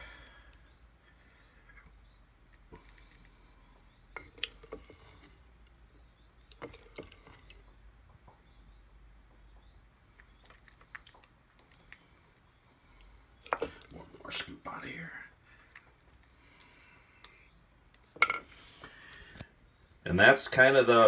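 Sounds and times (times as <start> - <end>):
wet squelches of beans: 2.4 - 7.9, 10.1 - 14.6, 15.5 - 17.4.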